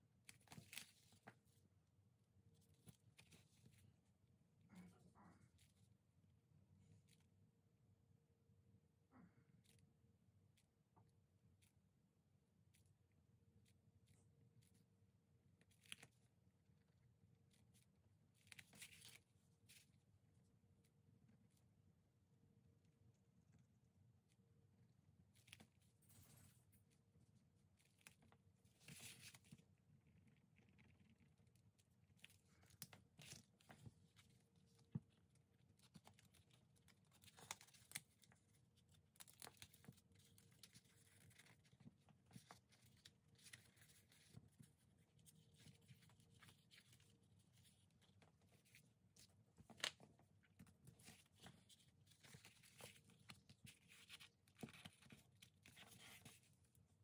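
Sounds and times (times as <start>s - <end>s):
paper rustling: 0.3s - 1.6s, 32.1s - 56.8s.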